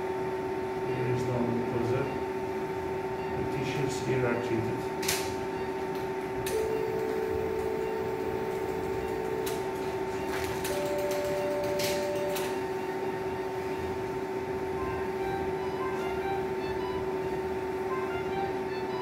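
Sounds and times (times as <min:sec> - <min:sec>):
two-tone electronic hum: 0:00.0 - 0:19.0
electronic activation tone: 0:06.5 - 0:19.0.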